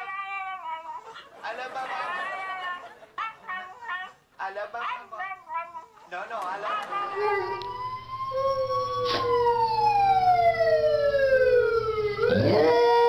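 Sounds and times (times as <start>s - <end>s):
small dog howling: 0.0s - 1.2s, 6.6s - 10.2s, 12.1s - 13.0s.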